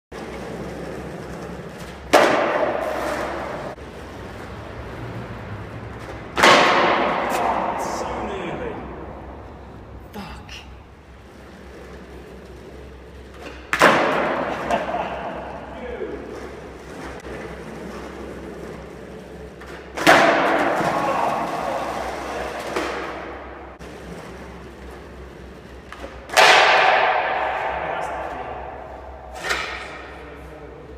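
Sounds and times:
skateboard slapping on concrete: 0.2s - 4.7s, 5.7s - 8.3s, 11.3s - 27.8s.

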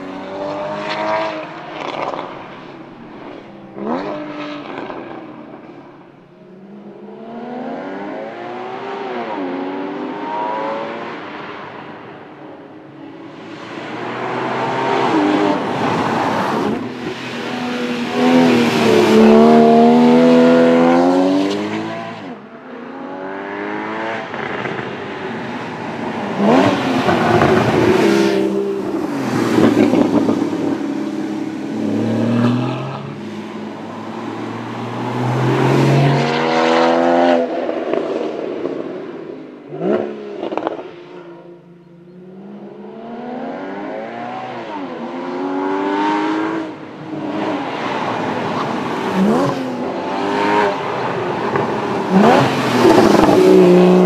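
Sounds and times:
car engine revving: 13.9s - 25.2s, 42.1s - 54.0s.

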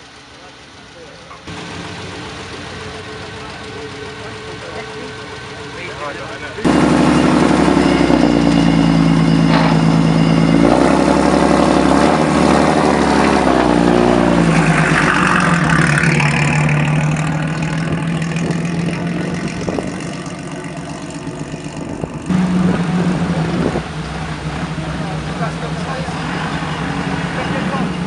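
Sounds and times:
car engine pulling away: 0.0s - 28.0s.

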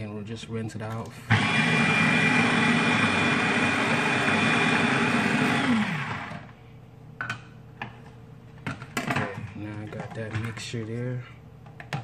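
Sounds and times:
electric food chopper whirring: 1.3s - 6.6s.

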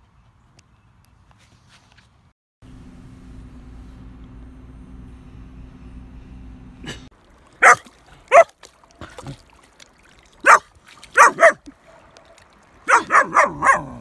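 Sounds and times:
puppy barking: 7.6s - 8.6s, 10.4s - 14.0s.

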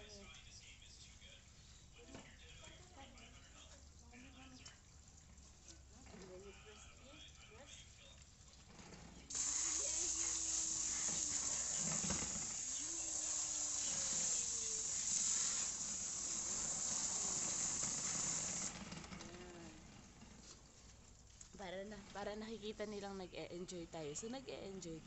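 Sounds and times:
hose nozzle water spray hissing: 9.3s - 18.8s.

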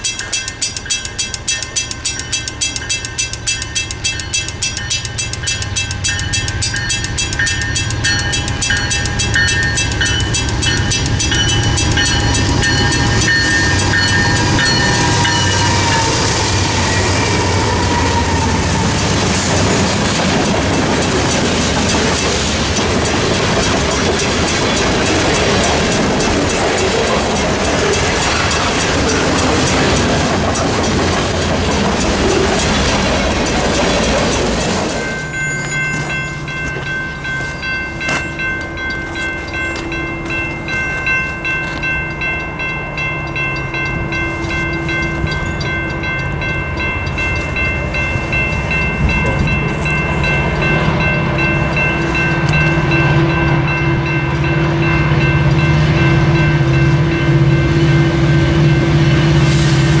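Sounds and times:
crossing bells ringing: 0.0s - 60.0s
diesel locomotive drone: 0.0s - 60.0s
freight cars rumbling past: 5.7s - 41.6s.

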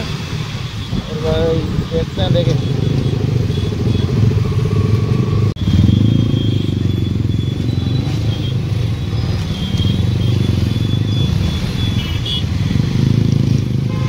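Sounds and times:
motorcycle engine running: 2.3s - 8.6s.

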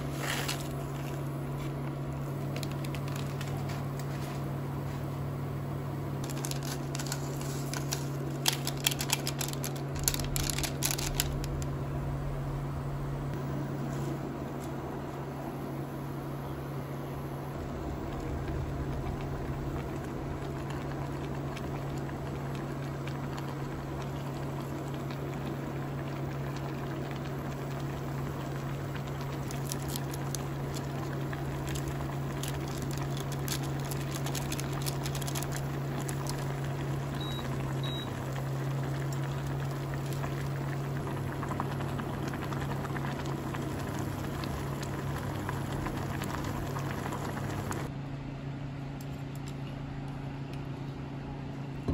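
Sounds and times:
cooktop hum: 0.0s - 51.9s
soup bubbling in a pot: 17.5s - 47.9s.

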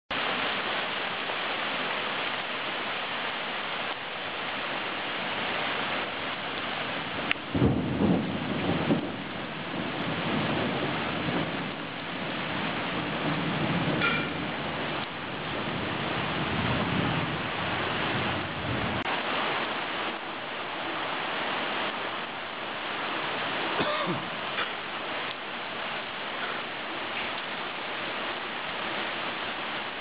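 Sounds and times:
heavy rain pouring: 0.1s - 30.0s
thunder rumbling: 6.4s - 30.0s.

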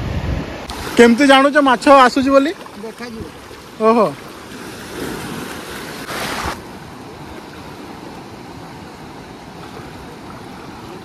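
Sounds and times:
wind on microphone: 0.0s - 1.1s
surf washing in shallows: 0.0s - 11.0s.

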